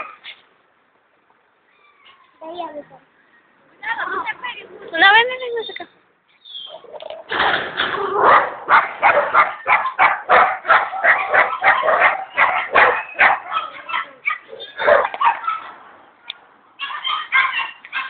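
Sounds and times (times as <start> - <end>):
dog barking: 8.1 - 15.8, 16.8 - 18.0.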